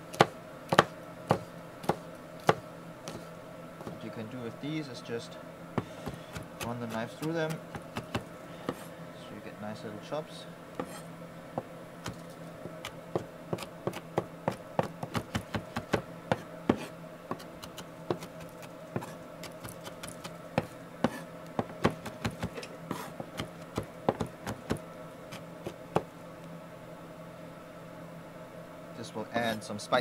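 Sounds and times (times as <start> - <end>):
knife chopping on wooden board: 0.1 - 3.2, 3.8 - 4.0, 5.8 - 8.9, 10.8 - 11.0, 11.6 - 18.4, 19.0 - 26.1.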